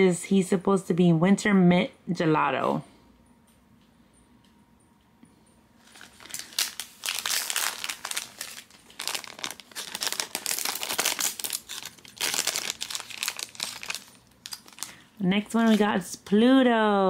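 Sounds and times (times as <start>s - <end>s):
foil bag crinkling: 5.8s - 16.1s.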